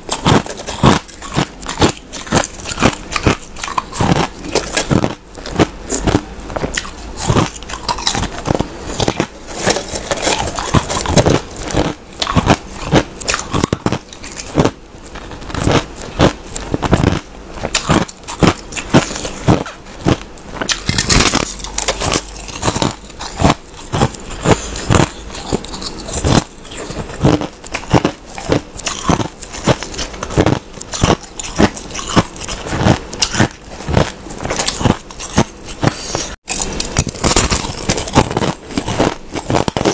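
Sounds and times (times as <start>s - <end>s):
person crunching ice: 0.0s - 39.9s.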